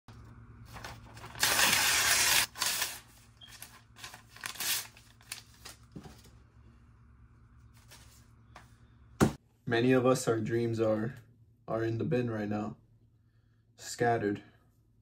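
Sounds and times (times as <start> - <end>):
paper tearing: 0.8 - 5.4.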